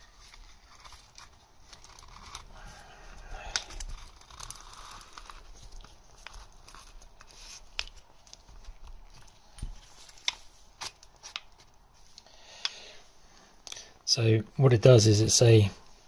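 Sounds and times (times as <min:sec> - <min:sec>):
gloved hands rustling: 0:00.0 - 0:13.8.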